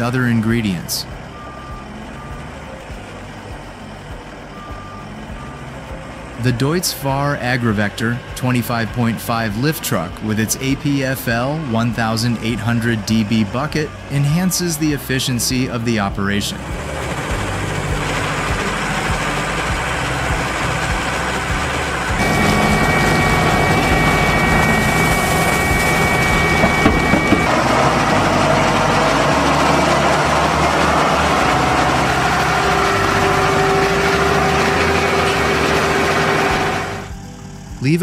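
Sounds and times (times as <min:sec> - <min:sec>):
thin steady whine: 0:00.0 - 0:38.0
tractor engines running: 0:00.0 - 0:38.0
feed mixer: 0:16.6 - 0:37.1.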